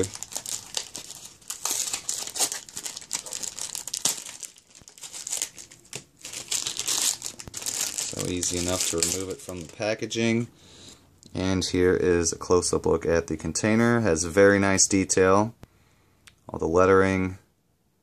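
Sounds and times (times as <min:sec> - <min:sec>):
plastic packaging crinkling: 0:00.0 - 0:10.2.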